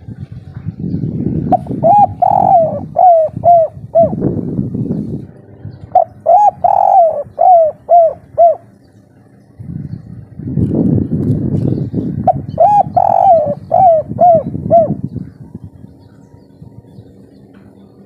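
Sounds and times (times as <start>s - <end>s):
low rumble: 0.0s - 18.0s
dove cooing: 1.3s - 8.9s, 12.1s - 17.8s.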